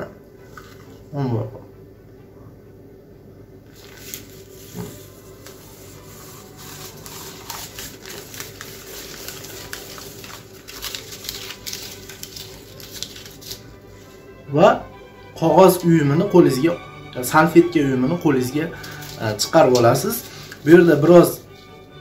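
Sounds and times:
paper crinkling and crackling: 3.7s - 14.1s, 18.4s - 21.4s.

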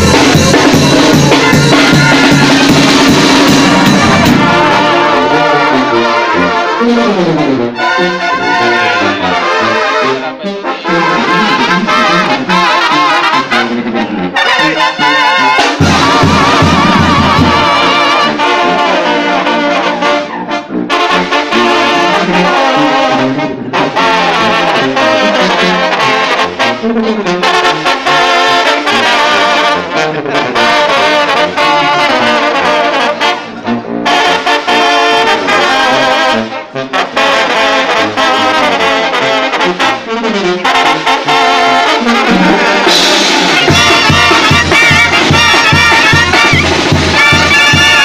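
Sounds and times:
drums: 0.0s - 7.6s, 11.2s - 20.3s, 40.6s - 48.0s
trumpets and trombones playing: 0.0s - 48.0s.

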